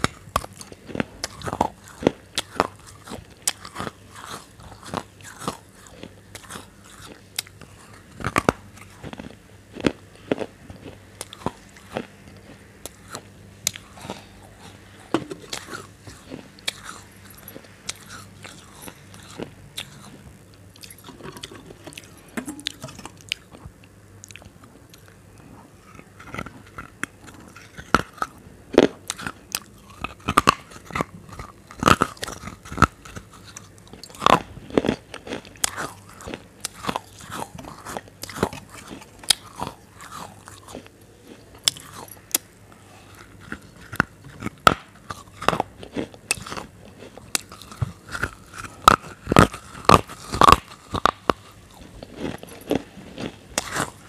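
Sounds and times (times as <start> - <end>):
crunchy food being chewed: 0.0 - 54.0.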